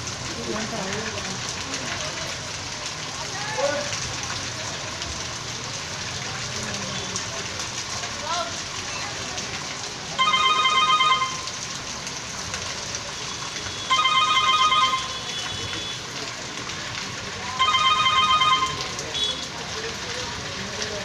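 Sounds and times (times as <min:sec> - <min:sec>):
heavy rain hissing: 0:00.0 - 0:10.2, 0:11.3 - 0:14.0, 0:15.0 - 0:17.6, 0:18.6 - 0:21.0
phone ringing: 0:10.2 - 0:11.5, 0:13.9 - 0:15.2, 0:17.6 - 0:18.8.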